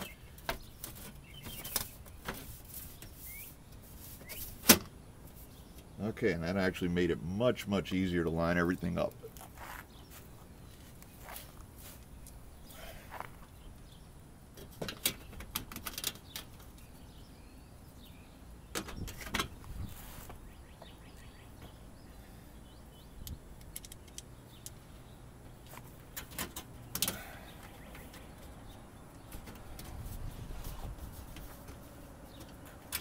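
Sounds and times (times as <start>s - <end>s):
faint bird chirps: 0.0s - 4.6s, 20.1s - 23.4s, 26.9s - 29.8s.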